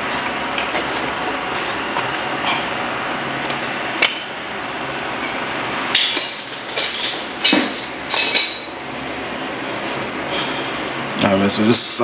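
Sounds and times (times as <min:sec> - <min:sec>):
metal tools clinking: 0:06.0 - 0:08.8.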